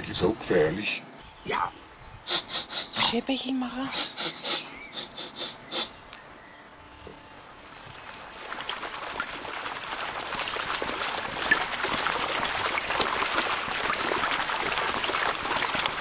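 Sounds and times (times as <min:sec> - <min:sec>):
hedge leaves rustling and crackling: 0:07.4 - 0:16.0.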